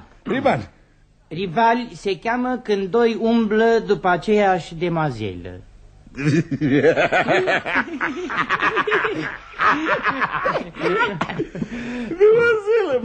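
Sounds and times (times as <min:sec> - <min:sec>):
person laughing heartily: 0:06.2 - 0:12.5.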